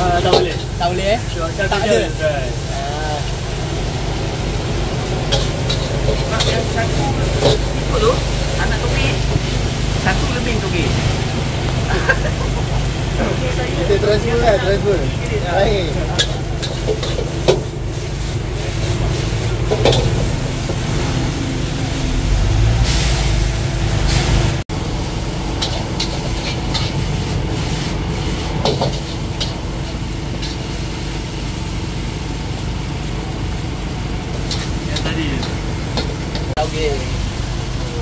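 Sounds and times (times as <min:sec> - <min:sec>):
metal utensils clanking on wok: 0:00.0 - 0:01.0, 0:05.2 - 0:09.5, 0:15.9 - 0:18.3, 0:19.1 - 0:20.3, 0:25.6 - 0:27.1, 0:28.5 - 0:30.7, 0:34.4 - 0:37.0
gas burner rumble: 0:00.0 - 0:38.0
sizzling hiss: 0:00.0 - 0:38.0.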